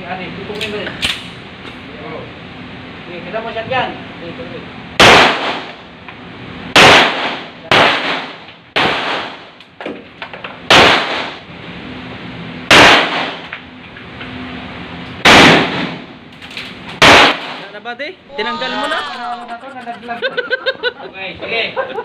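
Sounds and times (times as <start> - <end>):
handgun shots echoing: 17.0 - 17.7.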